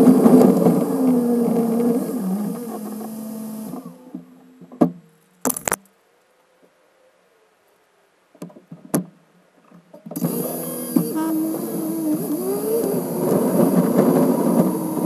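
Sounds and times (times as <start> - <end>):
car engine starting and running: 10.2 - 15.0.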